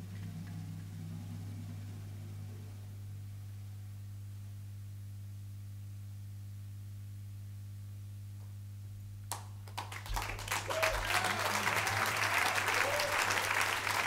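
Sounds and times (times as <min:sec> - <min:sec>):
steady low hum: 0:00.0 - 0:14.0
audience applause: 0:09.7 - 0:14.0.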